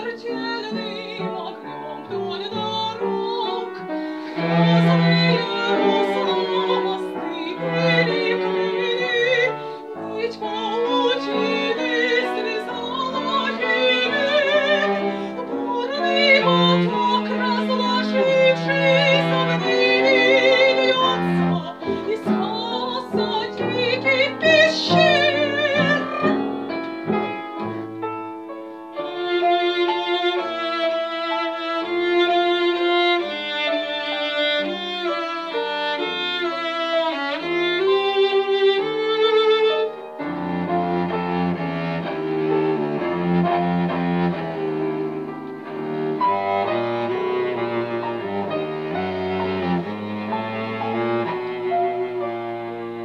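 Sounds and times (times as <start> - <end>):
soprano singing with vibrato: 0.0 - 26.5
bowed cello: 0.0 - 53.0
piano: 0.0 - 53.0.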